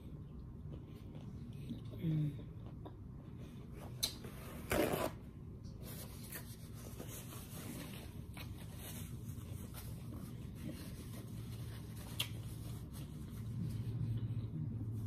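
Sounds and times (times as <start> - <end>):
paper napkin rustling: 5.8 - 14.1.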